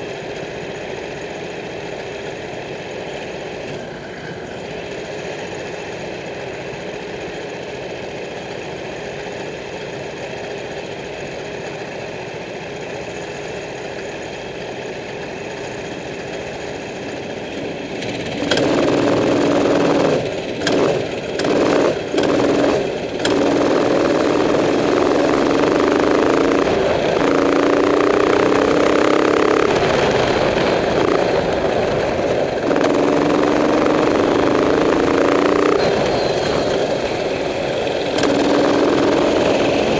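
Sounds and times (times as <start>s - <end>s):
kart engine revving: 15.1s - 39.9s.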